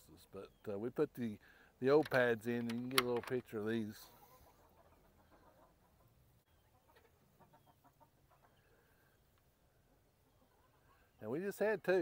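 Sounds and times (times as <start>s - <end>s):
hens clucking: 3.8s - 11.2s.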